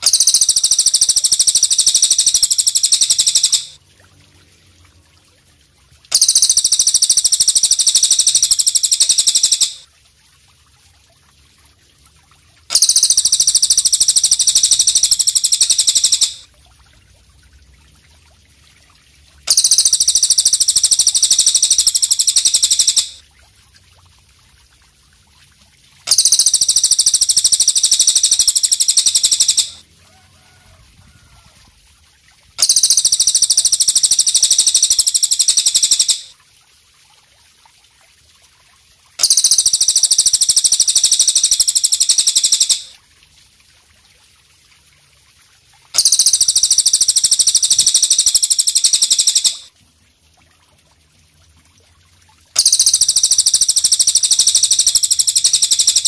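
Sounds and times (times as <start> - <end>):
katydid high pulsing trill: 0.0 - 3.8, 6.1 - 9.8, 12.7 - 16.5, 19.5 - 23.2, 26.1 - 29.8, 32.6 - 36.3, 39.2 - 42.9, 46.0 - 49.7, 52.6 - 56.0.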